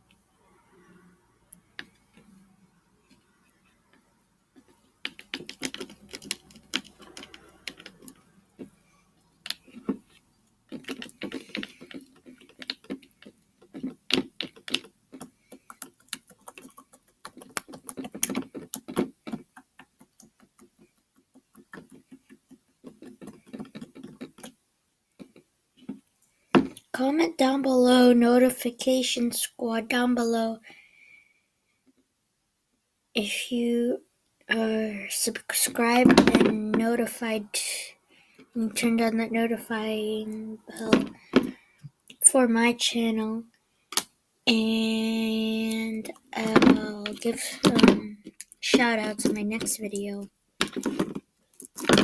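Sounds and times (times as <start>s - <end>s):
utensils tapping plastic bowl: 5.0s - 8.8s, 9.4s - 24.5s.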